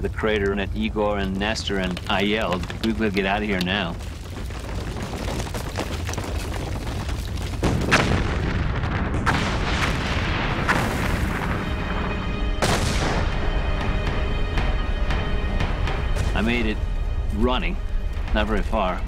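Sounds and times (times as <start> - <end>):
deep volcanic rumble: 0.0 - 19.0
sharp eruption blasts: 7.2 - 13.6.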